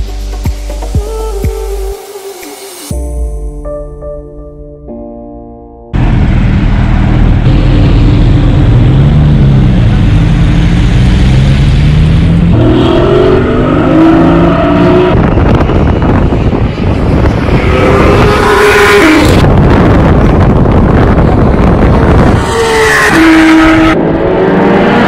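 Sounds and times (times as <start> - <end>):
sports car engines revving: 6.0 - 25.0.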